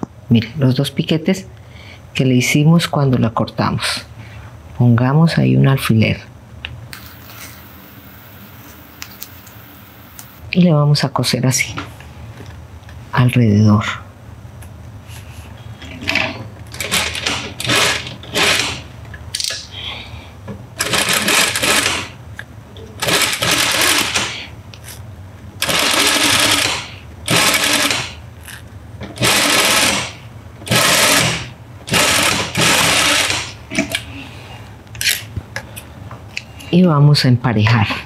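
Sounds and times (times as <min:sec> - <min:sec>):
steady low hum: 0:00.0 - 0:38.0
sewing machine running: 0:16.2 - 0:18.9, 0:20.8 - 0:22.2, 0:23.0 - 0:24.3, 0:25.6 - 0:28.2, 0:29.2 - 0:33.6.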